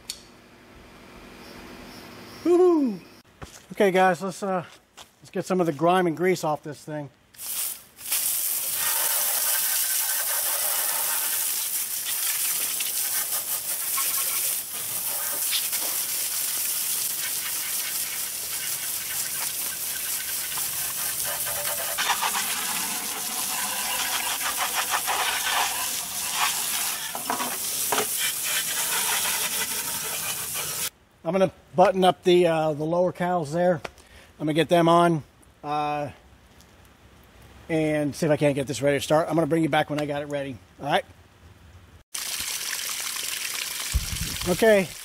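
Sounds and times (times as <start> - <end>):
hose nozzle spraying water: 7.4 - 30.9.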